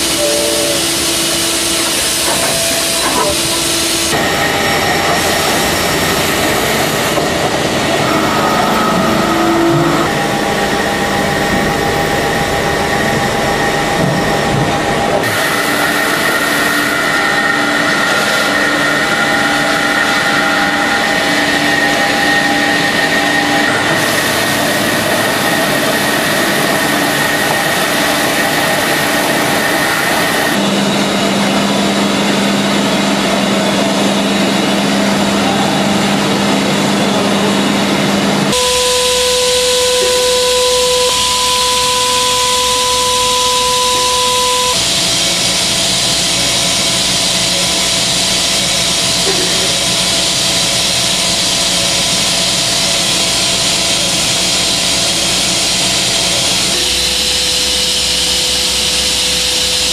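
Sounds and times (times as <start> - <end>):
spindle whining: 0.0 - 14.7, 38.5 - 45.0.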